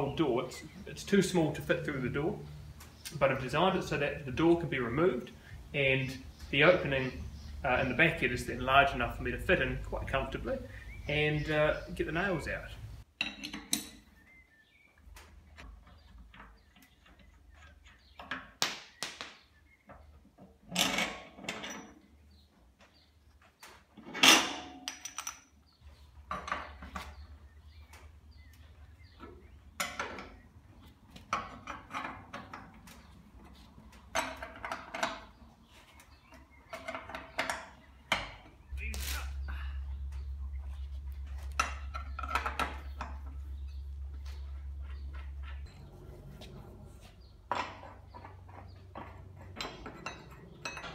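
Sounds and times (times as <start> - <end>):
metal clanks and scrapes: 23.9 - 25.4, 44.4 - 50.9.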